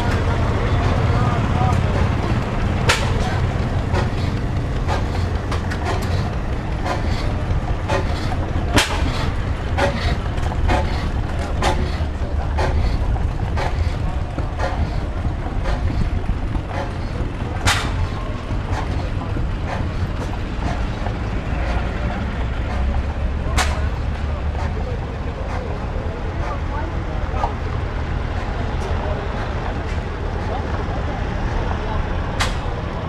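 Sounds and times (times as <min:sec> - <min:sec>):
sharp clicks and knocks: 0:00.0 - 0:24.8, 0:32.4 - 0:32.8
golf cart rumbling: 0:00.0 - 0:33.0.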